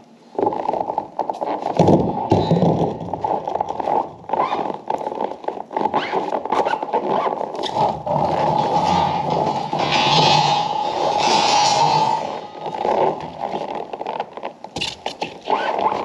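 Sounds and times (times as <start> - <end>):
steel rebar clanking and scraping: 7.6 - 13.6.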